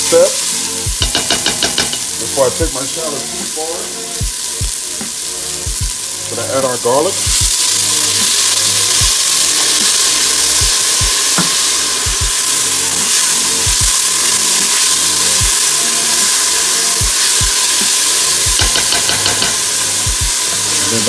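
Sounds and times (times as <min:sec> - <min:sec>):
garlic sizzling in hot oil: 0:00.0 - 0:21.0.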